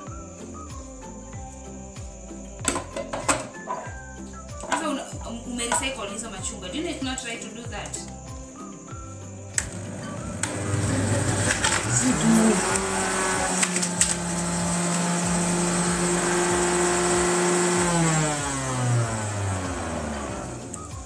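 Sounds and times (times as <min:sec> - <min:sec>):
juicer motor humming: 0:09.5 - 0:21.0
oranges crunching with clicks: 0:11.4 - 0:15.2.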